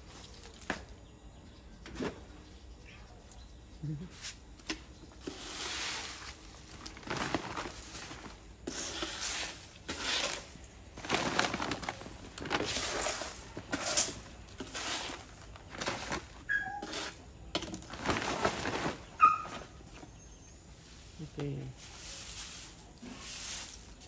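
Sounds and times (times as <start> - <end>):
dry leaves rustling and crackling: 5.2 - 24.0.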